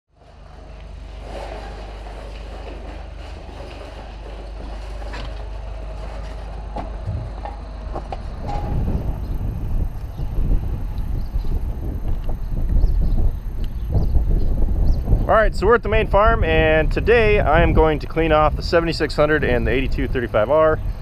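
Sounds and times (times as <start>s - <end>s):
pressure washer wheels rolling: 0.1s - 12.2s
frame and hose rattling: 0.2s - 11.8s
sharp knocks: 6.8s - 9.0s.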